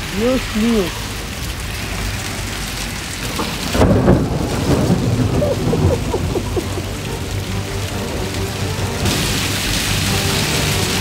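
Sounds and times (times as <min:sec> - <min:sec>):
heavy rain and hail: 0:00.0 - 0:11.0
low thunder rumble: 0:02.6 - 0:08.2.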